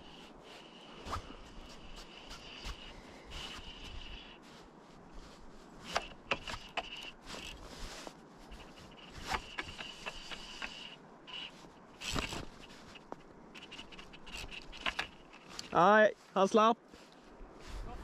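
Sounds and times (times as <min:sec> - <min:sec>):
fly reel drag buzzing: 0:00.0 - 0:04.4, 0:05.8 - 0:15.6
reel and rod clicks: 0:05.8 - 0:07.8, 0:08.5 - 0:15.8.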